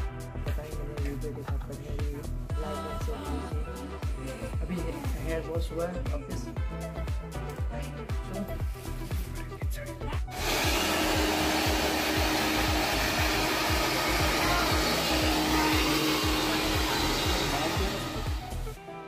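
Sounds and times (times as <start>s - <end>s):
background music with steady beat: 0.0s - 19.0s
hair dryer blowing: 10.3s - 18.8s.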